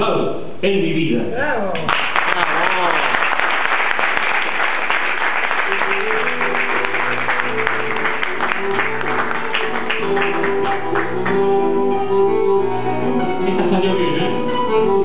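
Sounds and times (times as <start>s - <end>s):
audience applauding: 1.8s - 11.7s
recorded instrumental accompaniment: 5.1s - 15.0s.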